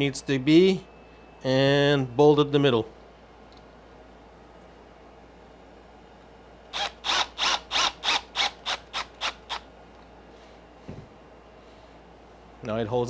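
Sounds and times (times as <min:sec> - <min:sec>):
cordless drill driving screw: 0:06.7 - 0:09.6.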